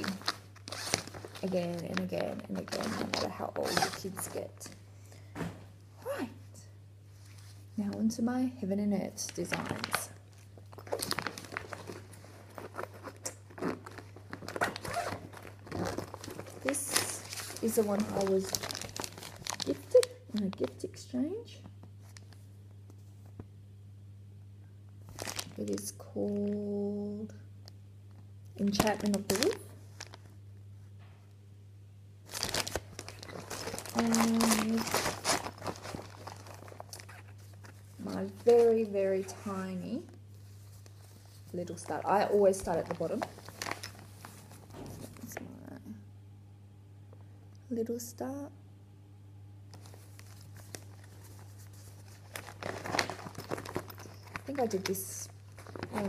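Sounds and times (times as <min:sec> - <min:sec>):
plastic bag crinkling: 0:00.0 - 0:04.4, 0:09.2 - 0:20.8, 0:25.1 - 0:25.9, 0:28.6 - 0:30.4, 0:32.2 - 0:39.7, 0:40.3 - 0:45.4, 0:49.7 - 0:56.0.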